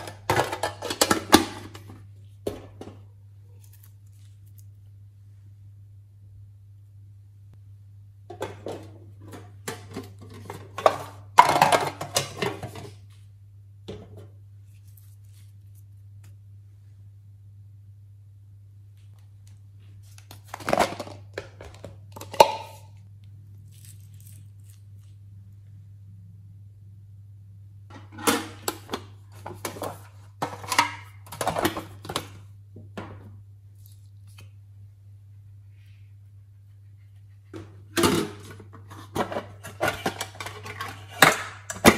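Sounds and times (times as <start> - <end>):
small items clattering in a tin: 0.0 - 1.9, 9.2 - 13.0
steady low hum: 0.0 - 41.8.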